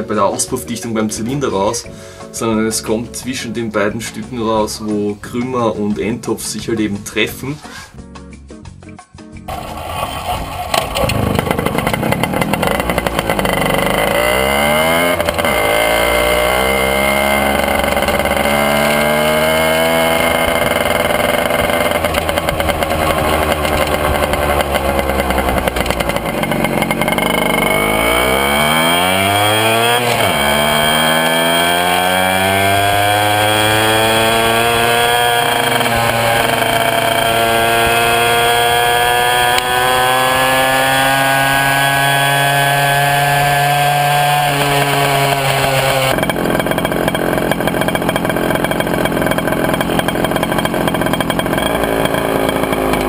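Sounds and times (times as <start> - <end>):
moped engine revving: 0.0 - 6.5, 9.5 - 53.0.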